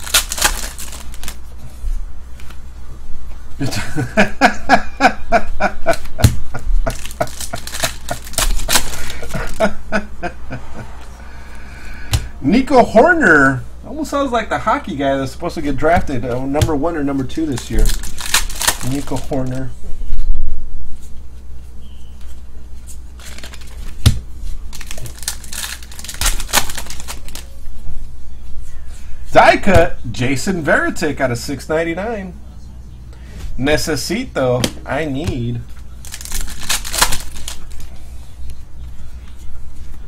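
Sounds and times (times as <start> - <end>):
cards flipping clicks and snaps: 0.0 - 1.4, 5.9 - 9.4, 23.2 - 27.4, 36.1 - 37.8
foil wrapper crinkling: 0.0 - 1.5, 6.8 - 9.7, 17.2 - 19.7, 23.2 - 27.5, 36.0 - 37.9.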